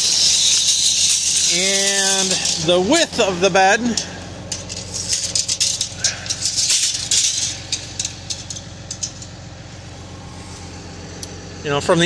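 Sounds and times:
tape measure rattling and clicking: 0.0s - 9.4s
steady low hum: 0.0s - 12.0s.

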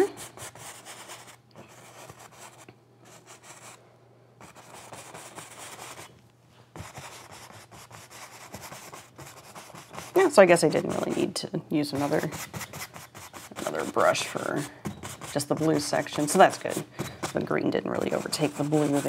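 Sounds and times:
paintbrush scrubbing on canvas: 11.9s - 19.0s.

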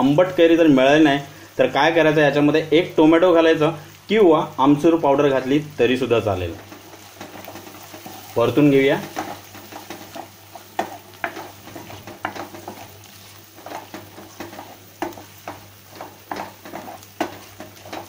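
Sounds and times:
soft sizzle: 0.0s - 18.0s
spatula scraping and knocking pan: 6.5s - 18.0s.

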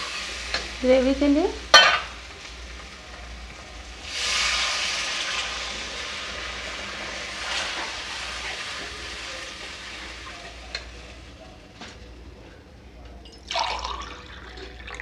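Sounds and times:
water hissing in hot oil: 0.0s - 11.4s.

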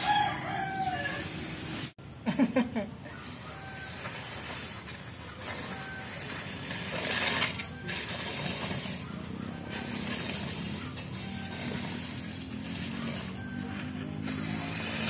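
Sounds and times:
rice grain raked on concrete: 3.4s - 15.0s.

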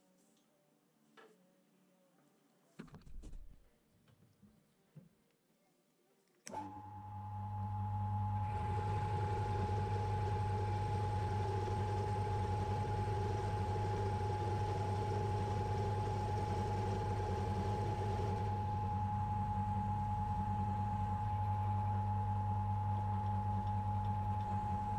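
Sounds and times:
motor humming and whining: 6.5s - 24.9s.

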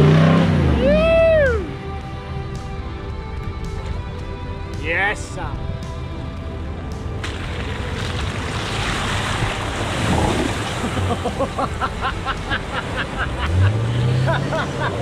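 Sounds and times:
water rushing and splashing: 7.0s - 15.0s
wind on microphone: 8.1s - 11.0s.

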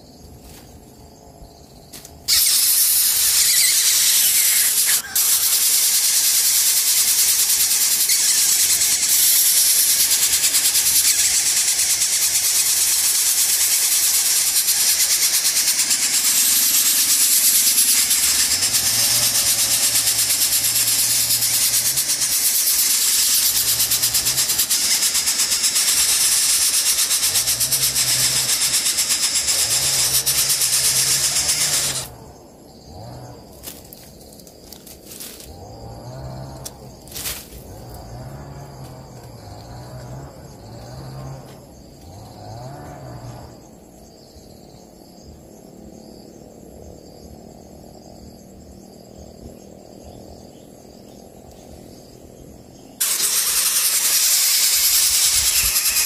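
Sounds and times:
nestlings rasping hiss: 2.0s - 32.2s, 53.0s - 56.0s.

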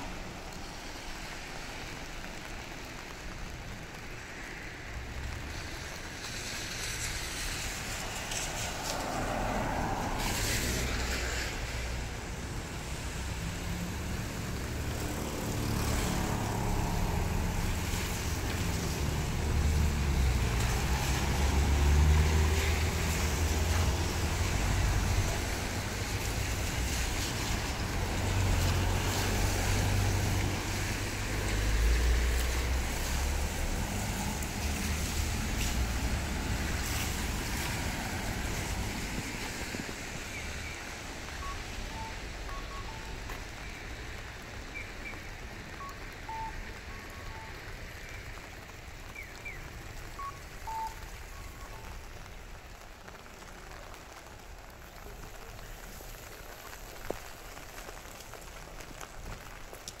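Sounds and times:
rain hissing on wet road: 0.0s - 60.0s
vehicle rumbling past: 6.8s - 43.0s.

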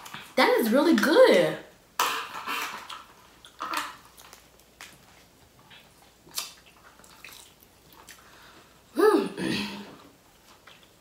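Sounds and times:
chewing and mouth smacks: 2.6s - 8.3s, 10.3s - 11.0s.

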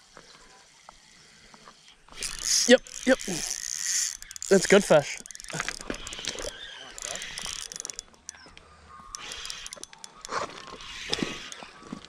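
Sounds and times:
fishing reel clicking and ratcheting: 2.1s - 11.8s.

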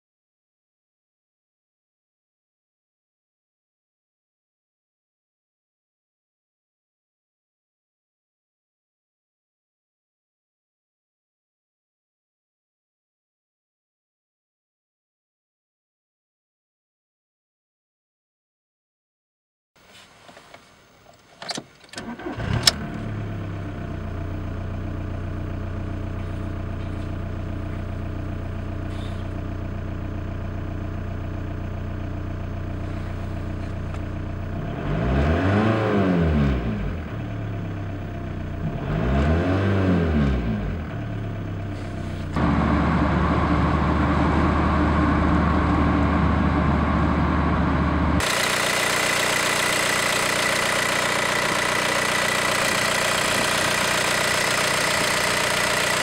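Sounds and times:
diesel engine starting and revving: 22.0s - 56.0s.

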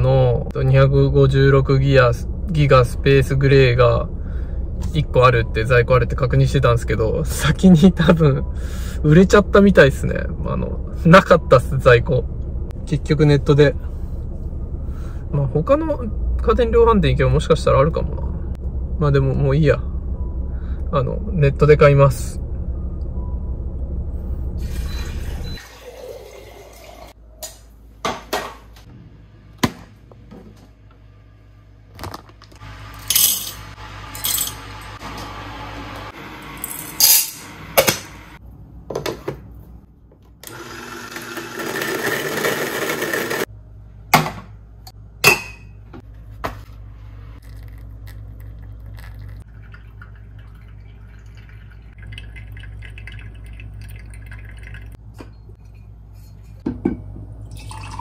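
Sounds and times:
hot water trickling from kettle: 25.6s - 27.2s, 47.4s - 55.0s
metal canister and lids clinking: 33.0s - 33.6s
electric coffee grinder running: 40.4s - 43.5s.

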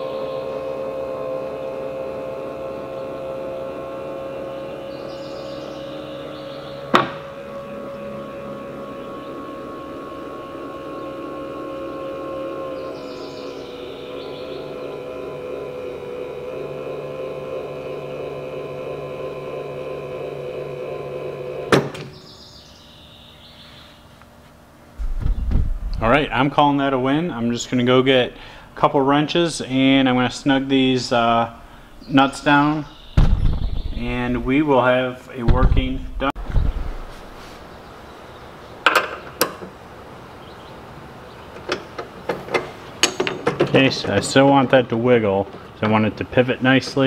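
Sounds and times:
actuator motor humming: 0.0s - 47.0s
loud clunk: 6.9s - 7.3s, 21.7s - 22.2s, 25.0s - 26.0s, 33.1s - 34.0s.

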